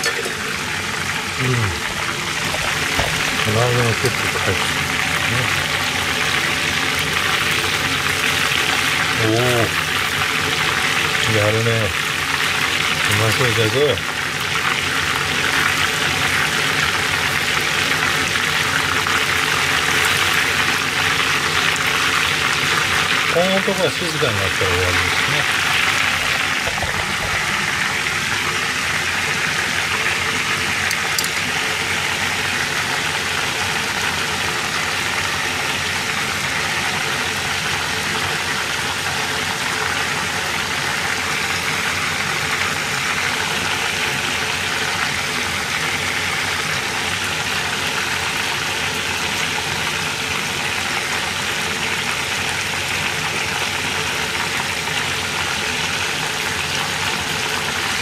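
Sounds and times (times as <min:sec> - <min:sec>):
hot oil sizzling: 0:00.0 - 0:58.0.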